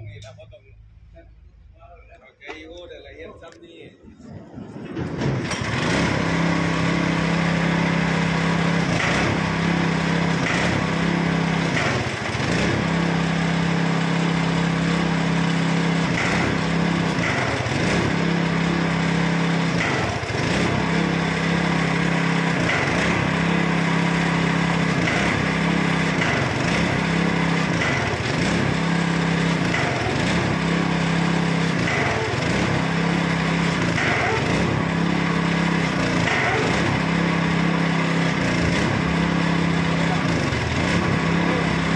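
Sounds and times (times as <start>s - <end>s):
small engine labouring: 4.2s - 41.9s.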